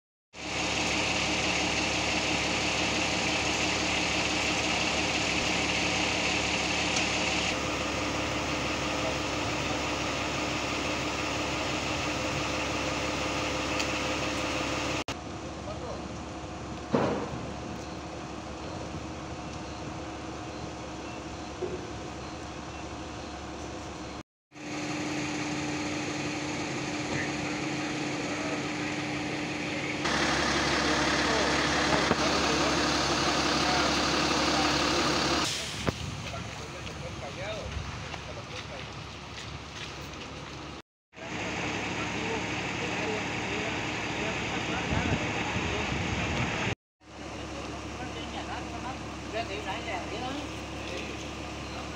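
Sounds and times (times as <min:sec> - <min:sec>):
steady motor hum: 0:00.4 - 0:35.5
vehicle engine idling: 0:00.4 - 0:51.9.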